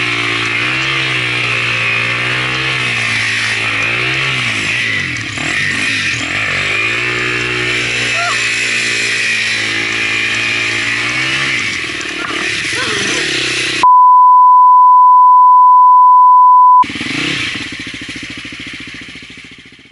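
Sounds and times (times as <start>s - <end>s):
dirt bike engine running: 0.0s - 13.8s, 16.8s - 19.9s
loud electronic beep: 13.8s - 16.8s.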